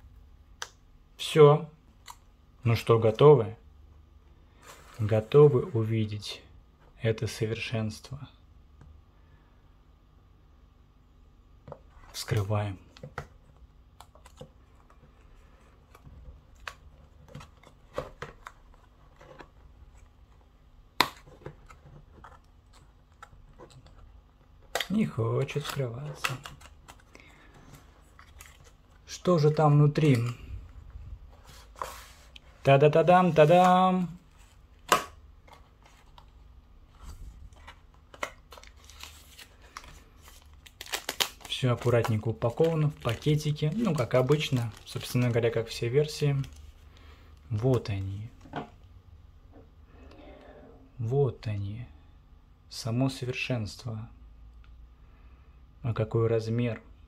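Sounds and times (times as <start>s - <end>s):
cardboard and plastic rustling: 11.7s - 48.8s.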